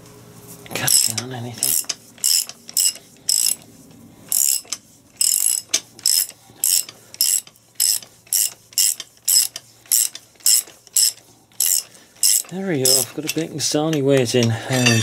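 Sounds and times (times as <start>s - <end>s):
socket ratchet clicking: 0.9s - 3.6s, 4.3s - 13.1s.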